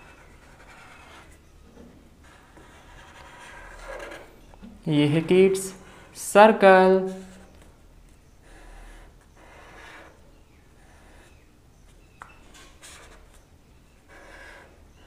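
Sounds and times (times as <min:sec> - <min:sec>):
marker strokes on paper: 0:12.4 - 0:13.4.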